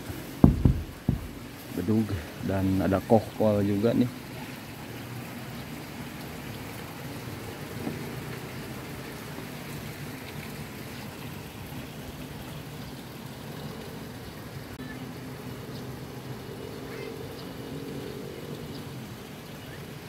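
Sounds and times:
steady rain falling: 0.0 - 20.0.

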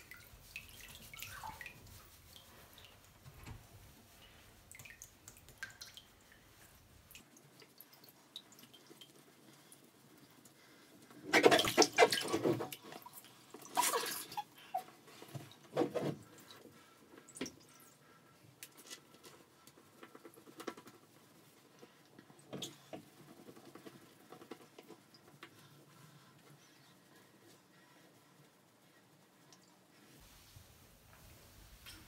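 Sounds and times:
towel rubbing wet fur: 0.0 - 4.8
faint water drips: 0.0 - 32.0.

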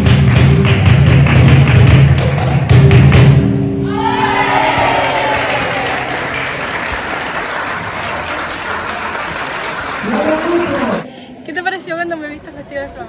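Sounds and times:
crowd applauding and cheering: 0.0 - 2.9, 3.8 - 11.1
flamenco music: 0.0 - 11.0.

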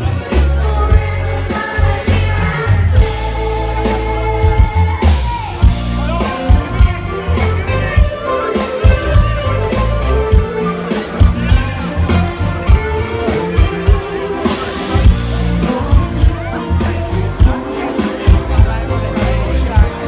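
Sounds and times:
singers: 0.0 - 6.9, 13.3 - 20.0
live pop band: 0.0 - 20.0
drum beat: 3.0 - 20.0.

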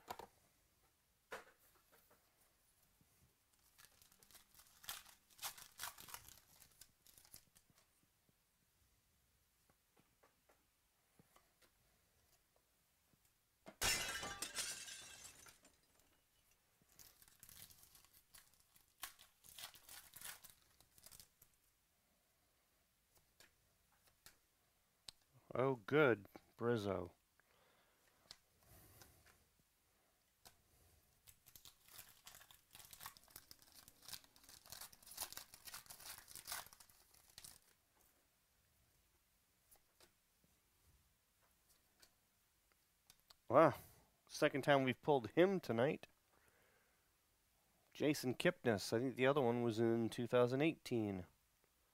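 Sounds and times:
plastic wrapper tearing and crinkling: 3.5 - 7.8, 16.9 - 21.6, 31.2 - 37.8.

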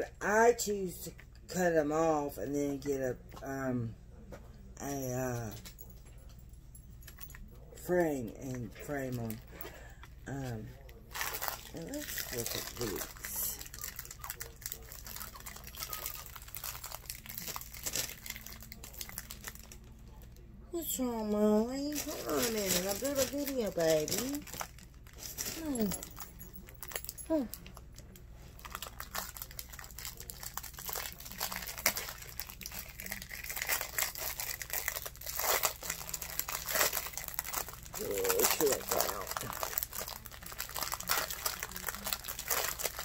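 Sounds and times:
plastic packaging crinkling: 8.4 - 20.4, 21.6 - 43.0.

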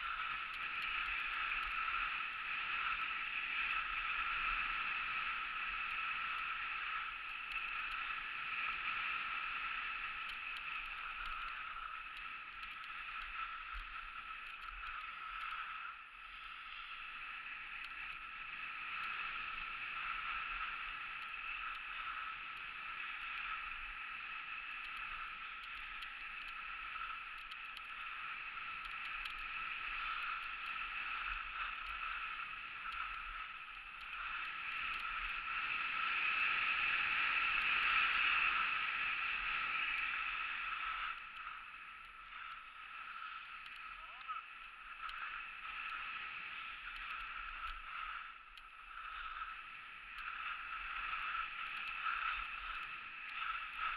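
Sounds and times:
skis scraping over snow: 0.0 - 53.9
wind: 0.0 - 53.9.

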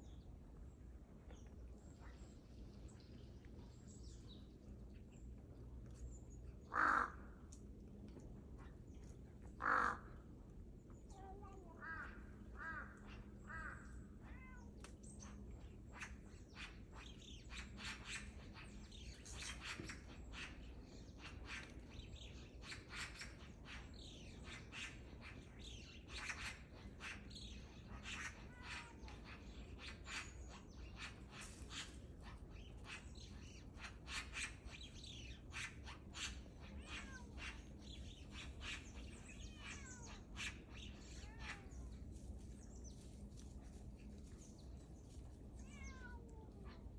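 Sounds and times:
crow calling: 6.6 - 7.4, 9.6 - 10.2, 11.4 - 14.6.

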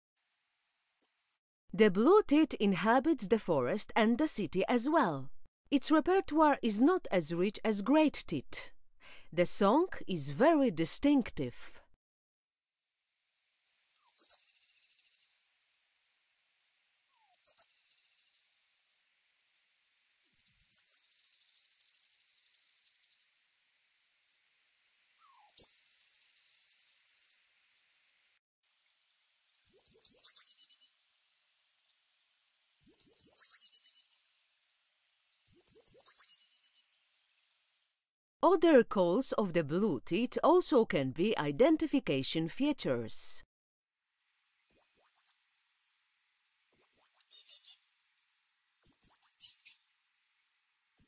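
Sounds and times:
bird singing with trill: 14.0 - 15.3, 17.1 - 18.6, 20.2 - 23.3, 25.2 - 27.4, 29.6 - 31.4, 32.8 - 34.4, 35.5 - 37.1, 44.7 - 45.6, 46.7 - 48.0, 48.8 - 49.8.

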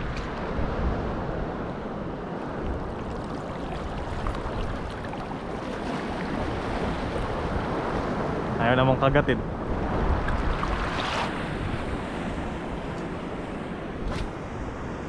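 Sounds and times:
wind rumbling on microphone: 0.0 - 15.0
sea water lapping at shore: 2.3 - 8.6, 9.5 - 15.0.

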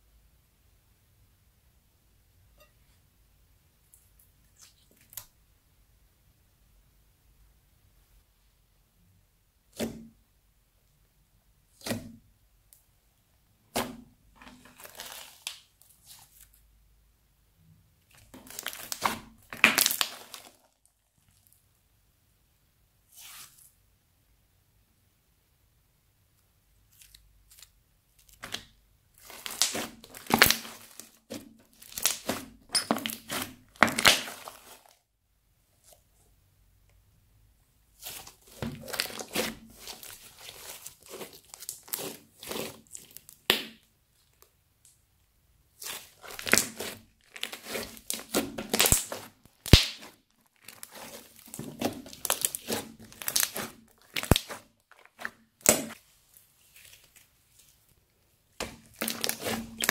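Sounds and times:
slime crackling: 14.6 - 16.4, 18.1 - 20.8, 28.3 - 35.0, 37.9 - 44.4, 45.7 - 57.9, 58.6 - 59.9
slime popping: 18.4 - 20.6, 29.2 - 34.8, 38.0 - 43.9, 45.8 - 56.0, 58.6 - 59.9
slime pops: 47.5 - 50.2.

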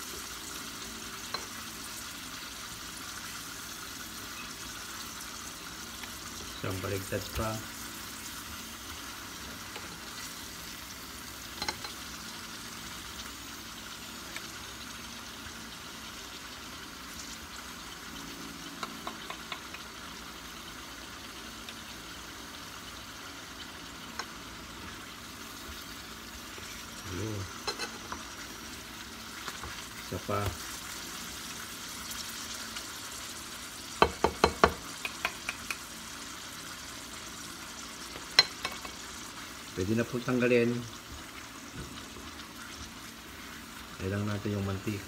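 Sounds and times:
slices sizzling in hot oil: 0.0 - 45.0
fork and spatula clicking on pan: 35.0 - 35.8.

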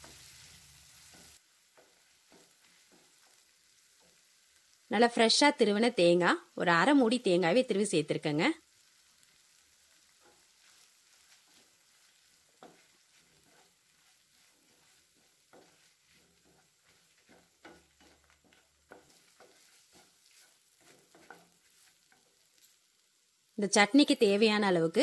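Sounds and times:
wooden spatula scraping a pan: 0.0 - 4.8, 8.8 - 23.0
low sizzle: 0.0 - 25.0.

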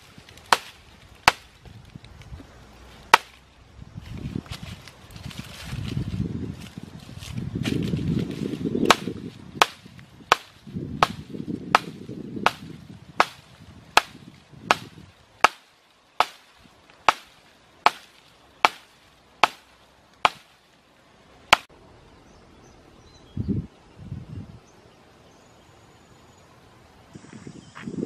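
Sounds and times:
steady chopping strikes: 0.4 - 1.5, 3.1 - 3.4, 8.8 - 20.6, 21.5 - 21.7.

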